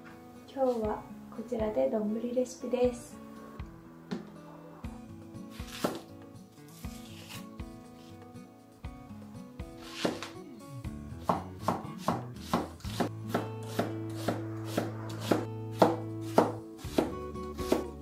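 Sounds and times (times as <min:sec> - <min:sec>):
background music: 0:00.0 - 0:18.0.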